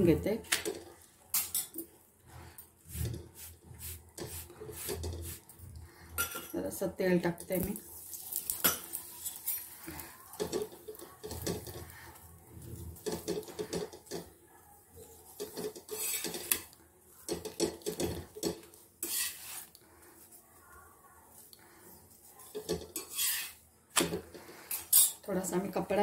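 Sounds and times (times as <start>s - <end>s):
spatula scraping a griddle: 1.3s - 6.5s, 7.7s - 14.3s, 15.0s - 20.3s, 21.7s - 25.2s.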